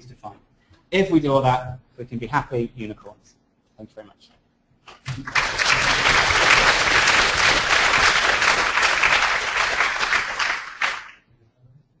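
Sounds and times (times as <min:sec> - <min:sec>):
audience applauding: 0:05.1 - 0:11.2.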